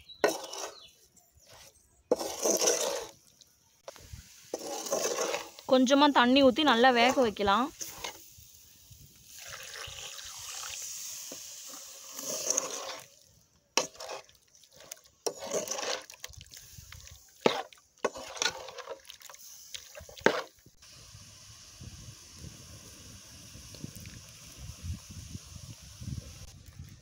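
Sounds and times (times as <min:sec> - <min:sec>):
metal ladle scraping pot: 0:00.1 - 0:01.0, 0:02.1 - 0:03.2, 0:04.5 - 0:05.7, 0:07.0 - 0:08.2, 0:09.4 - 0:13.2, 0:13.8 - 0:16.4, 0:17.4 - 0:20.5
water pouring into pot: 0:09.1 - 0:13.3.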